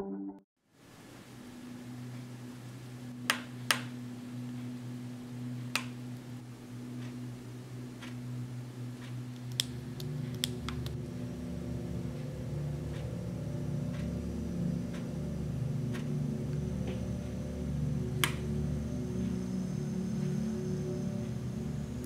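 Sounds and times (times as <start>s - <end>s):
low steady drone: 1.1s - 22.0s
wall clock ticking: 6.8s - 11.2s
quick irregular clicks: 9.0s - 11.0s.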